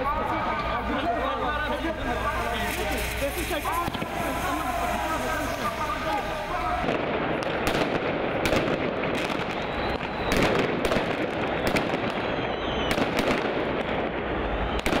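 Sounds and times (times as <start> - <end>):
fireworks crackling and banging: 0.0 - 15.0
faint firework whistles: 2.4 - 6.8, 8.6 - 13.5, 14.2 - 15.0.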